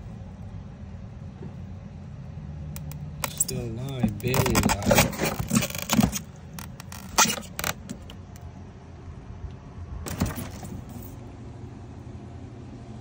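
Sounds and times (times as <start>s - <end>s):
crab scraping and rattling on ice: 3.2s - 8.1s, 10.1s - 11.2s.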